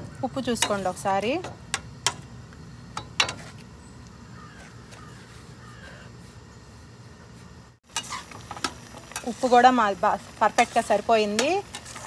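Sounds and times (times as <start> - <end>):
low burner rumble: 0.0 - 12.0
crows cawing faintly: 4.0 - 6.2.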